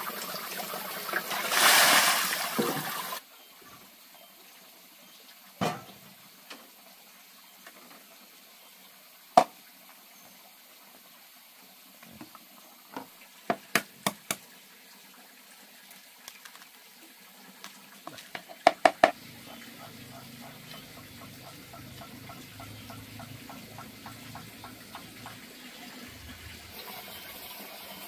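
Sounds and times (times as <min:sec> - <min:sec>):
faint steady hiss: 0:00.0 - 0:21.2.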